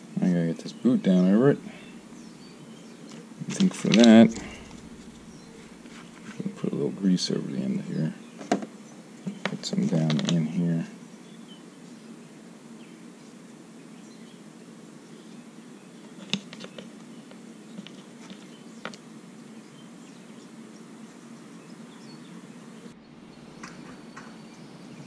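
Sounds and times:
low steady hum: 0.0 - 8.2, 22.7 - 25.0.

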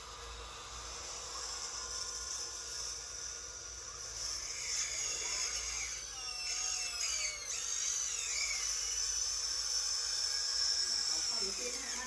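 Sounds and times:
electric pump and motors whining: 0.0 - 12.0.

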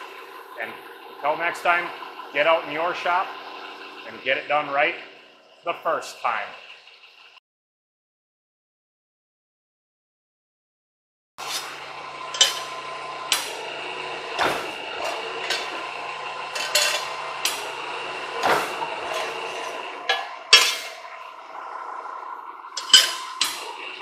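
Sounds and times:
press brake machine humming: 0.0 - 7.4, 11.4 - 24.0
sharp metallic clanks: 12.3 - 13.6, 16.5 - 17.6, 18.4 - 21.0, 22.8 - 23.7.

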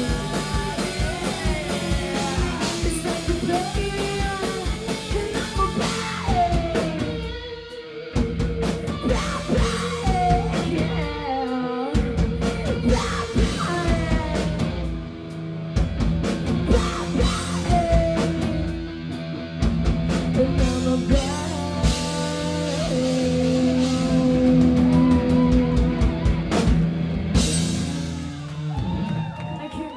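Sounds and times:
person singing: 0.0 - 7.9, 8.8 - 14.9, 16.6 - 18.8, 20.3 - 26.6
rock band playing live: 0.0 - 29.9.

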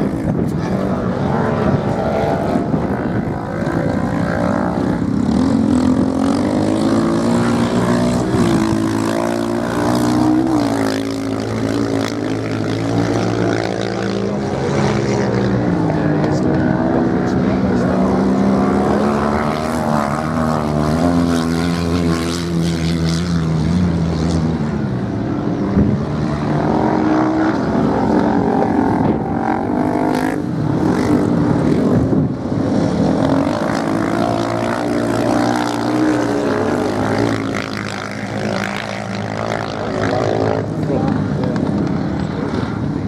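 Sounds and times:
motorcycle engines revving: 0.0 - 43.0.

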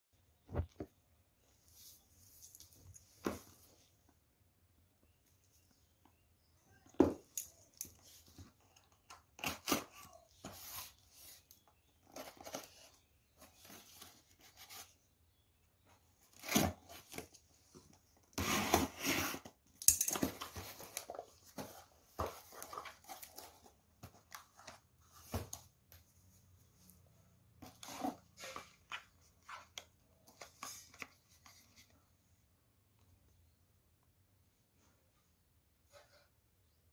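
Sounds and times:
tape and cardboard tearing: 18.3 - 19.5.

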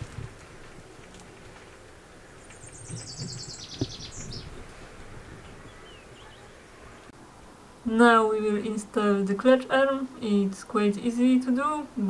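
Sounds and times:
small bird trilling: 2.5 - 4.6.

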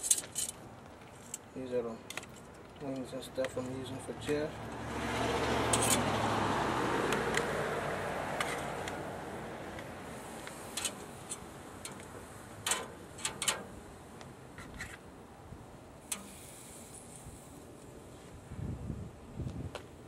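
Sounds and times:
clicks and taps on metal grill: 9.8 - 14.3
soft hiss: 10.0 - 19.8.

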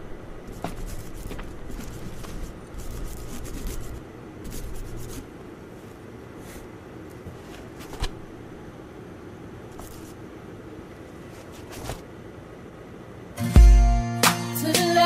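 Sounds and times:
rubbing and handling noise: 0.4 - 8.3, 9.7 - 10.3, 11.0 - 12.2.

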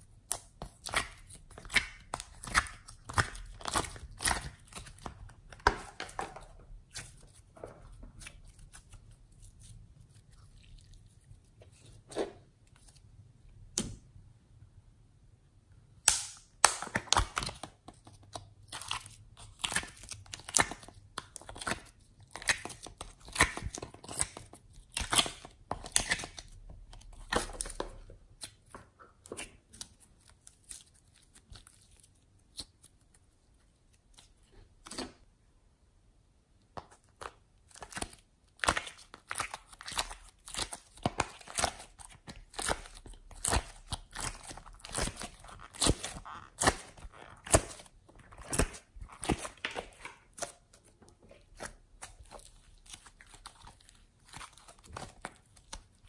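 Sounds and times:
slime squishing and popping: 0.1 - 7.2, 16.0 - 28.7, 37.1 - 50.5.

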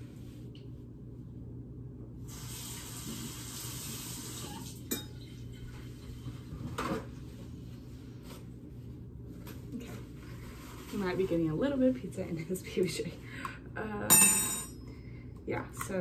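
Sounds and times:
kitchen tap running: 2.3 - 6.2.

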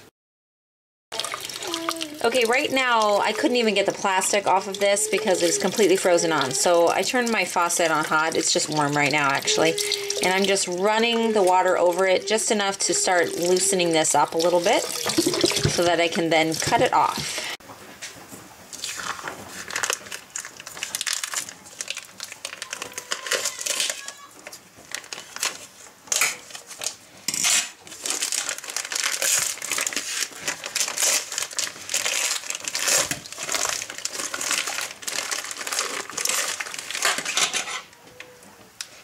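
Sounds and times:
plastic wrapping crinkling: 1.2 - 15.9, 18.2 - 38.0
scissors cutting plastic: 18.8 - 37.9.

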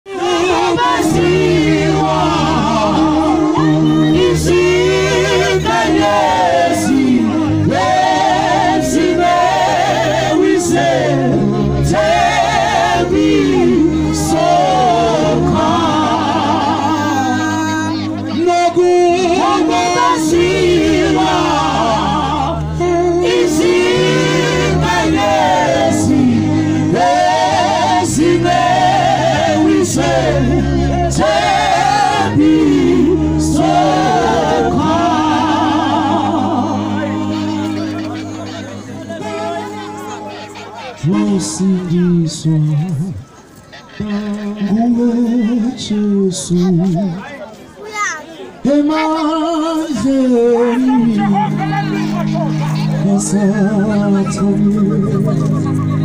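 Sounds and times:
group singing through pa: 0.1 - 43.2, 48.6 - 56.0
low accompaniment: 0.1 - 43.2.

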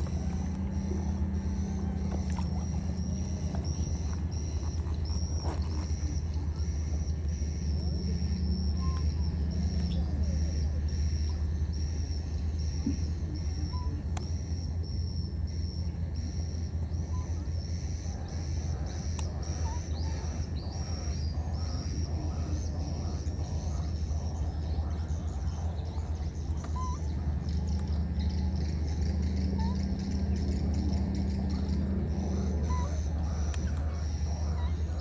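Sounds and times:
high-pitched rhythmic chirp: 0.0 - 24.3
constant low hum: 0.0 - 35.0.

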